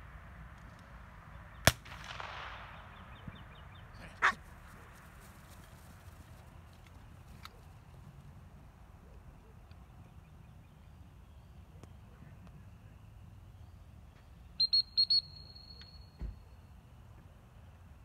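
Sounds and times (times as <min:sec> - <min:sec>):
dog whistle blasts: 0:14.6 - 0:16.2.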